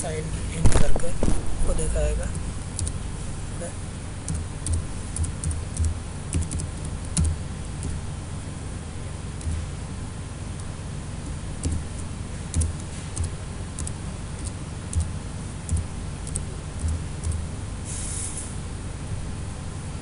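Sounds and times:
steady low hum: 0:00.0 - 0:20.0
keyboard keystroke clicks: 0:02.3 - 0:03.0, 0:04.3 - 0:08.0, 0:11.6 - 0:11.8, 0:12.5 - 0:15.1, 0:15.7 - 0:17.4
brief hiss: 0:17.8 - 0:18.6.

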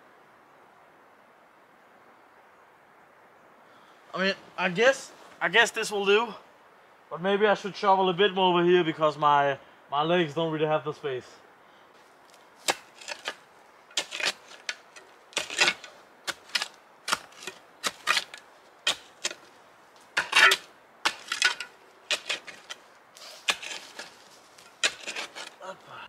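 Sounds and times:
shovel digging rocky soil: 0:12.6 - 0:25.6.

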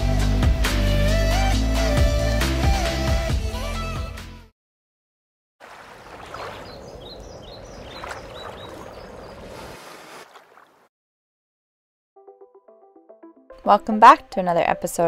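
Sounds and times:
water splashing against boat hull: 0:05.6 - 0:10.9.

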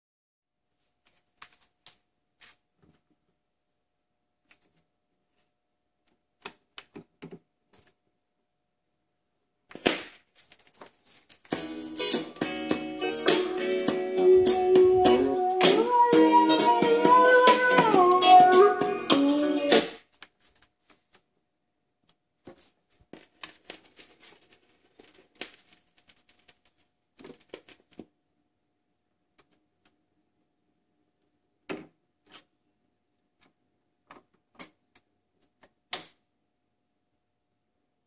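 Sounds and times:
record music: 0:11.2 - 0:20.4.

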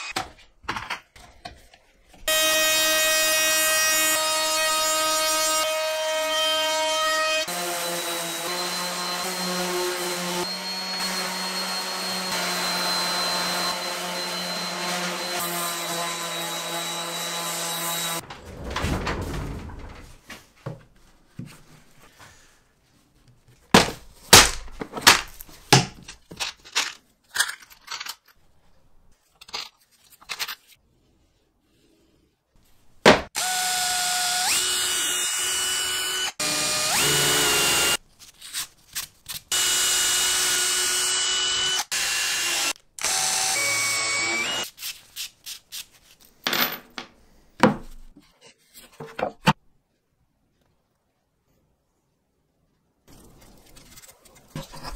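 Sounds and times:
electric drill boring: 0:07.4 - 0:17.4, 0:33.4 - 0:38.0, 0:39.5 - 0:44.7
orbital sander on plywood: 0:07.4 - 0:18.2.

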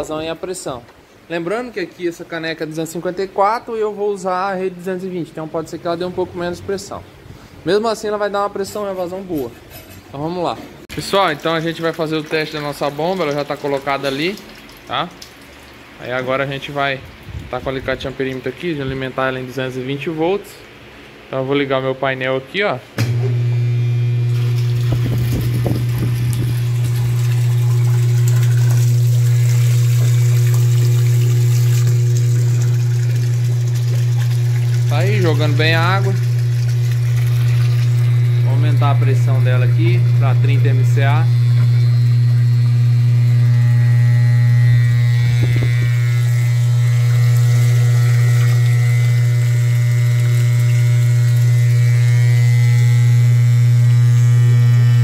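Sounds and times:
water pouring into barrel: 0:10.9 - 0:18.6, 0:24.2 - 0:54.2
pump low hum: 0:23.0 - 0:55.0.

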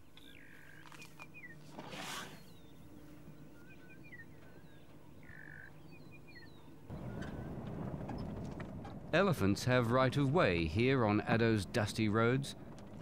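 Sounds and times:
birds chirping and whistling: 0:00.2 - 0:08.3
low rumbling noise: 0:06.7 - 0:13.0.

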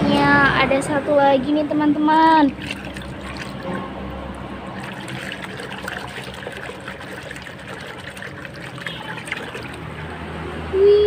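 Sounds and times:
water sloshing in plastic basin: 0:02.2 - 0:10.3.

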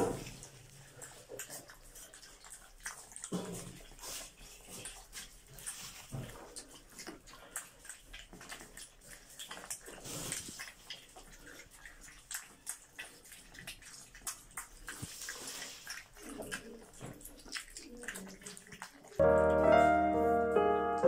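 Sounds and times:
puppies lapping water: 0:00.0 - 0:21.0
piano music: 0:19.2 - 0:21.0.

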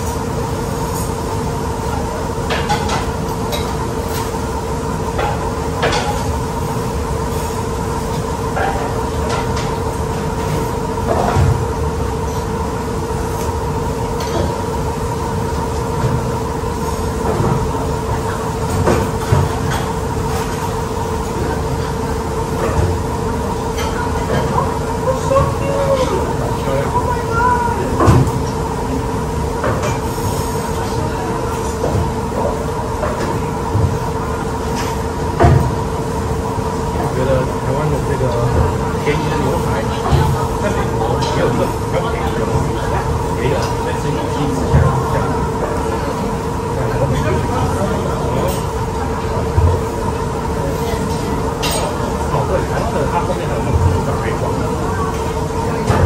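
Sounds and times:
mechanical hum with two-note drone: 0:00.0 - 0:56.0
forks clinking on hot plates: 0:51.1 - 0:52.0.

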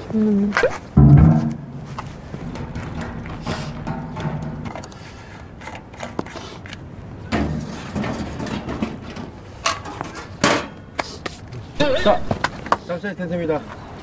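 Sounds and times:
sharp clicks and knocks: 0:00.7 - 0:06.3
fuel tank rustling and clattering: 0:00.7 - 0:10.8.

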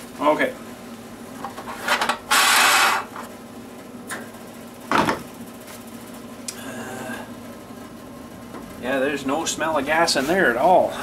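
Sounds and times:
scraping rub: 0:01.7 - 0:03.1.

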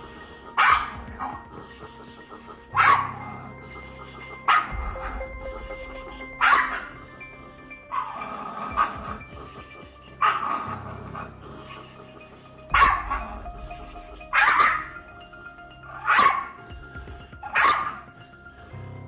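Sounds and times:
dog barking aggressively: 0:00.6 - 0:01.3, 0:02.8 - 0:03.2, 0:06.4 - 0:06.9, 0:12.8 - 0:13.2, 0:14.4 - 0:14.9, 0:16.0 - 0:16.6, 0:17.5 - 0:18.0.

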